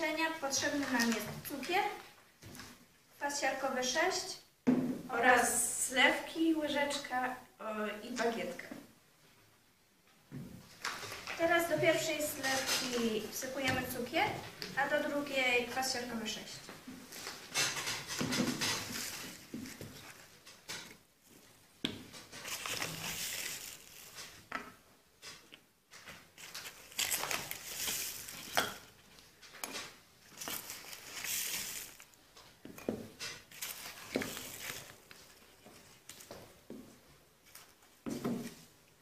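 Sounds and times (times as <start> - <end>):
paper bag rustling: 22.4 - 24.4, 26.4 - 28.6, 30.2 - 32.2, 33.5 - 36.3
spoon scooping sugar: 22.4 - 24.4, 26.4 - 28.9, 30.3 - 32.2.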